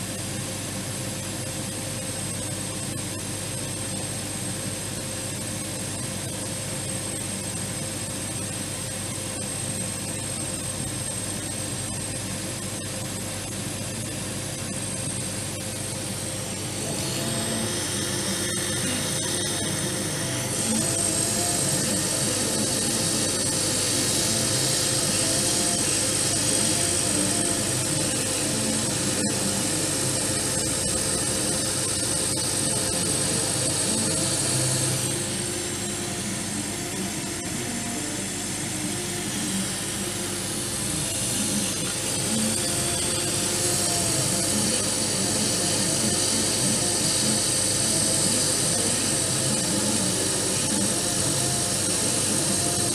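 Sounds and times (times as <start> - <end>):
laser cutter fans and pumps whirring: 0.0 - 52.9
thin high whine: 0.0 - 52.9.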